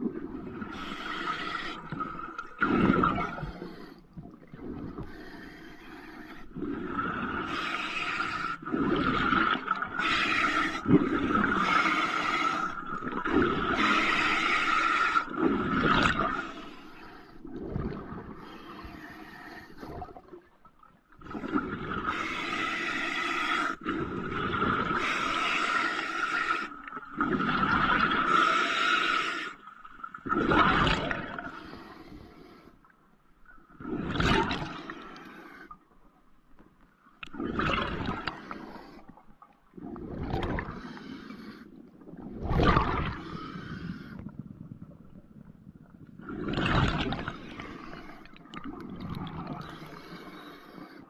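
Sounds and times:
gurgling exhaled bubbles: 0.0s - 5.2s, 6.6s - 16.6s, 17.4s - 18.6s, 23.8s - 28.9s, 30.1s - 31.6s, 33.7s - 35.0s, 37.2s - 38.8s, 39.7s - 40.9s, 42.0s - 50.3s.

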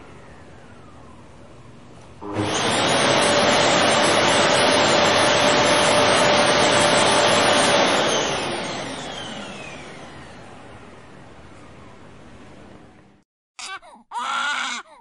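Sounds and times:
vacuum cleaner motor whining: 2.2s - 12.1s.

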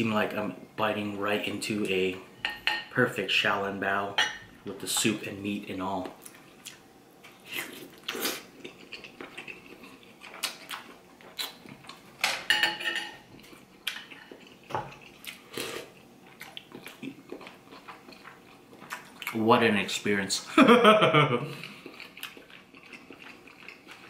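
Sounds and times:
chewing: 7.4s - 12.1s, 13.4s - 19.4s, 21.6s - 24.0s.

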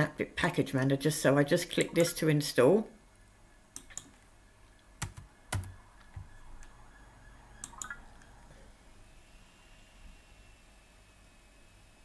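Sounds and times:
computer keyboard typing: 5.0s - 6.7s.

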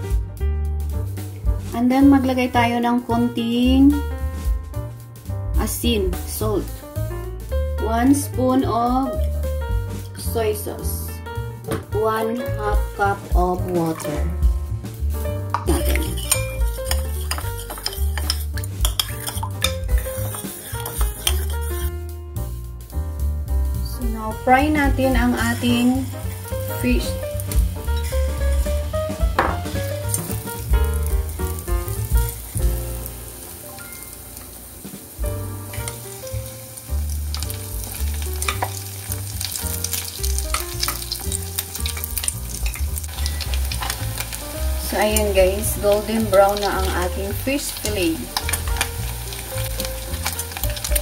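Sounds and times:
background music: 0.0s - 51.0s
oil sizzling and crackling: 3.9s - 51.0s
spoon clinking in ceramic bowl: 15.6s - 21.6s
chopsticks stirring: 15.6s - 22.0s.

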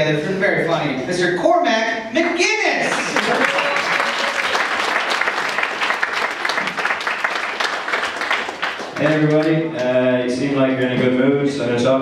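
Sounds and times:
audience clapping: 2.8s - 10.0s.

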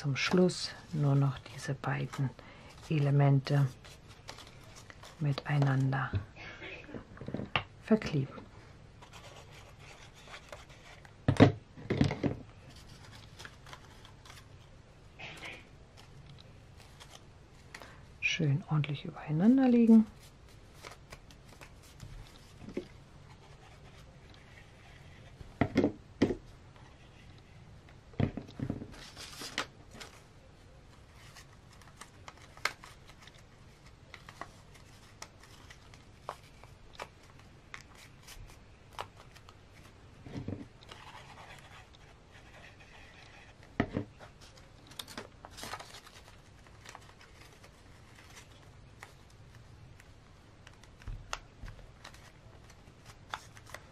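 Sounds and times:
paper rustling: 1.2s - 5.9s, 12.6s - 14.6s, 28.9s - 30.3s, 30.9s - 43.6s, 44.2s - 49.6s.

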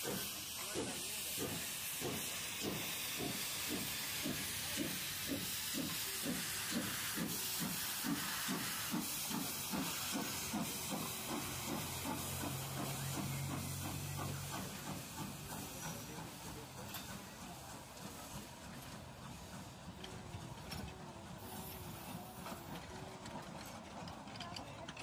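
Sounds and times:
steam hissing: 0.0s - 20.5s, 21.3s - 22.9s
steam locomotive exhaust chuffs: 0.0s - 24.4s.

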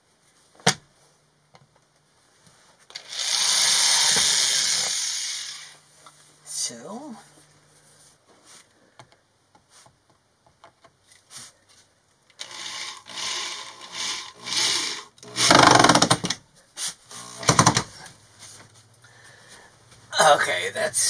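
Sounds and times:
cordless drill driving screws: 2.9s - 5.8s, 12.4s - 16.4s, 17.1s - 17.9s.

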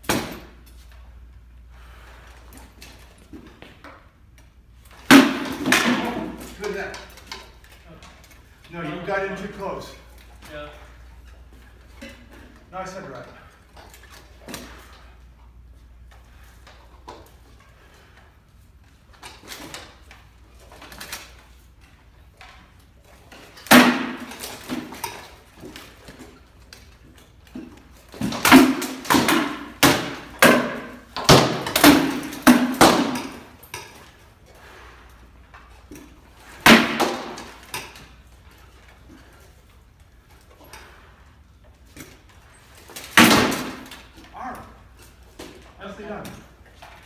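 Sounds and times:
swords striking shields: 5.0s - 6.9s, 23.6s - 25.3s, 28.1s - 33.7s, 36.6s - 38.0s, 43.0s - 44.7s.

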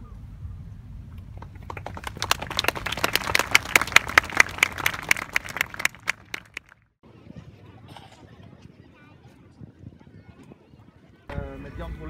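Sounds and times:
sharp individual claps: 1.4s - 6.8s
small audience clapping: 1.4s - 6.8s.

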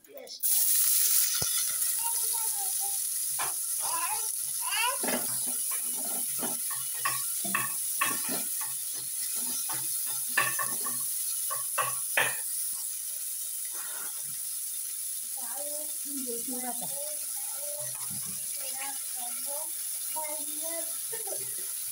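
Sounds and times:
onions sizzling in oil: 0.0s - 21.9s
wooden spatula scraping and knocking pan: 4.9s - 12.4s.

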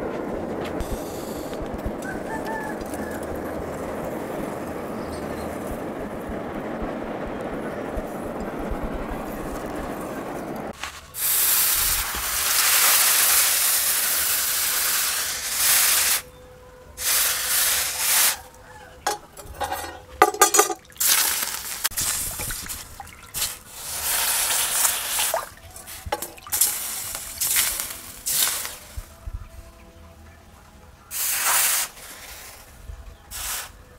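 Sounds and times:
low rushing noise: 0.0s - 12.5s
hot blade hissing in water: 11.2s - 16.3s, 17.0s - 18.5s, 23.4s - 29.0s, 31.1s - 32.7s, 33.3s - 33.8s.

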